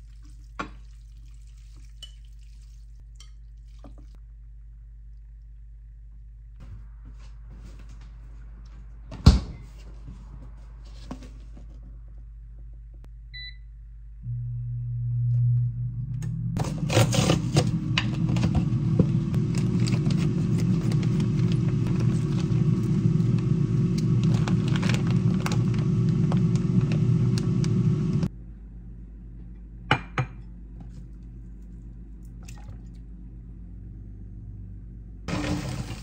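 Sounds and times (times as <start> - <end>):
air fryer humming: 13.3 - 28.3
plastic bag crinkling: 24.2 - 25.9.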